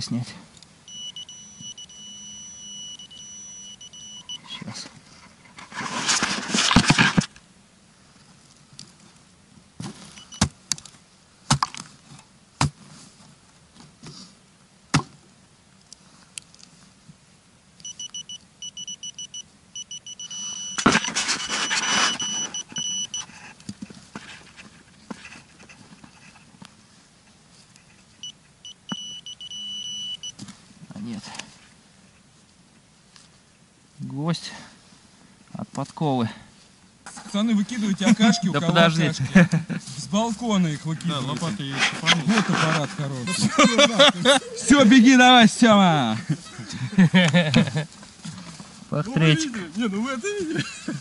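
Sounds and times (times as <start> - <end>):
high electronic tone: 0.9 - 4.4, 17.8 - 23.2, 28.2 - 30.3, 38.1 - 38.9
soil scraping and rustling: 4.7 - 7.4, 20.4 - 28.2, 37.0 - 43.6.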